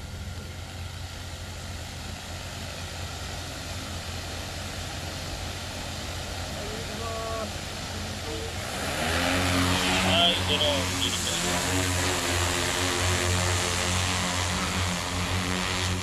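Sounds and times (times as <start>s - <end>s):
drone motors whirring: 8.4s - 16.0s
engine idling: 10.0s - 16.0s.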